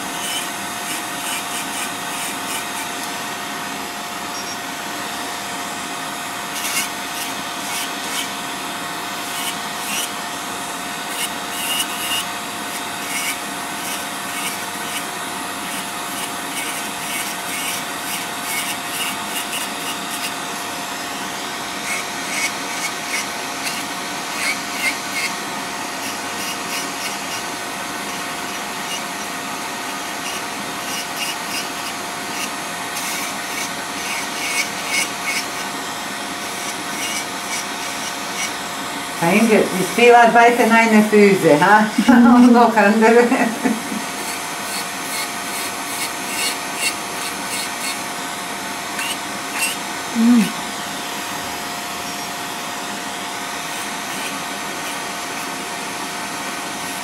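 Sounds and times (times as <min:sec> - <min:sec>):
drill bit grinding toenails: 0:00.0 - 0:03.3, 0:06.4 - 0:40.1, 0:43.6 - 0:50.7, 0:51.3 - 0:57.0
electric nail drill whining: 0:00.0 - 0:57.0.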